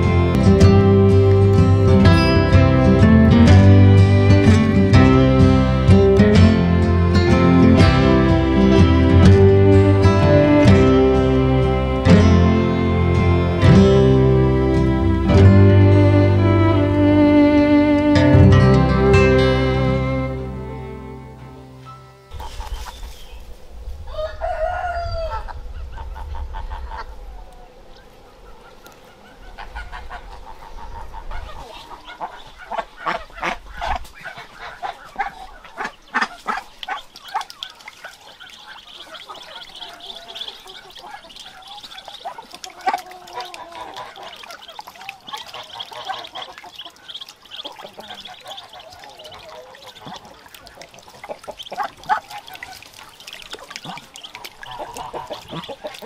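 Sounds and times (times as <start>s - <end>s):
rooster crowing: 24.0s - 25.6s
ducklings peeping: 27.9s - 56.0s
poultry clucking: 28.6s - 56.0s.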